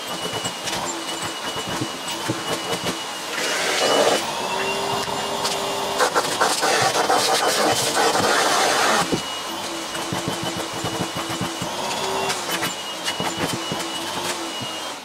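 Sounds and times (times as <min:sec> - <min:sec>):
vacuum cleaner whine: 0:00.0 - 0:15.0
nozzle scraping on cloth: 0:05.4 - 0:09.1.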